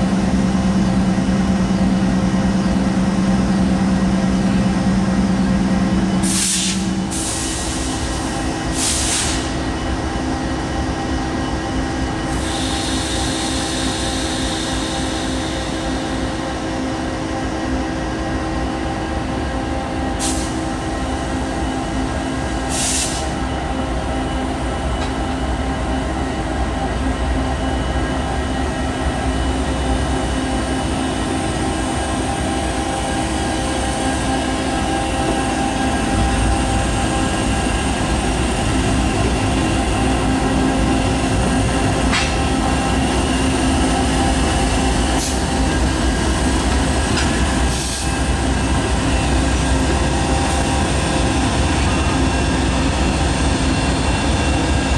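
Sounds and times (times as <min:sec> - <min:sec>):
locomotive engines droning: 0:00.0 - 0:54.9
train wheels squealing: 0:06.0 - 0:16.9.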